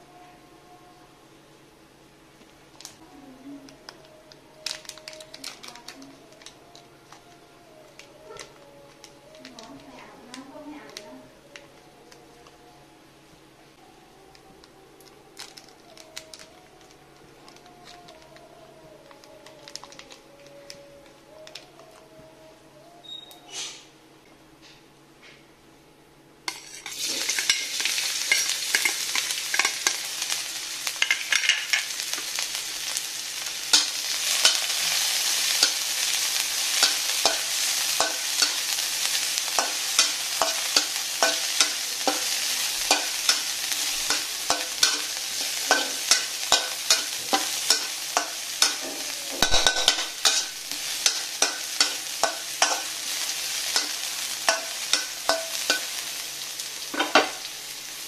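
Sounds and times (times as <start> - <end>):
food sizzling in hot oil: 26.5 - 58.0.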